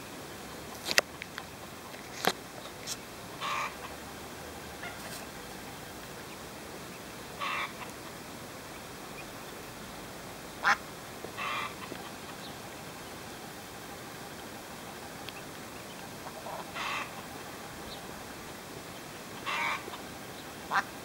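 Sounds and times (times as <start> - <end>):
duck quacking: 3.4 - 4.0, 7.4 - 8.0, 10.6 - 12.5, 16.2 - 17.3, 19.4 - 20.0, 20.7 - 20.9.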